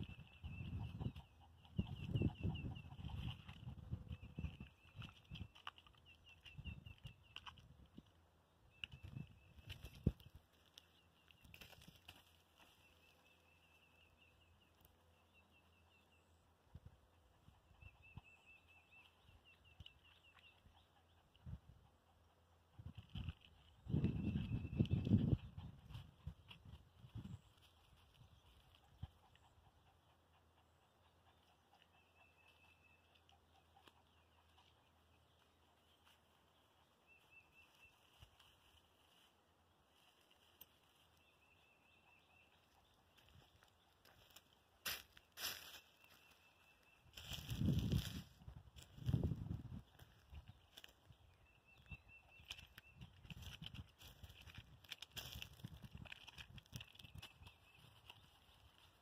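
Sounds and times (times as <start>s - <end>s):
faint high bird chirps: 17.4s - 21.6s, 30.9s - 39.3s, 45.0s - 54.6s.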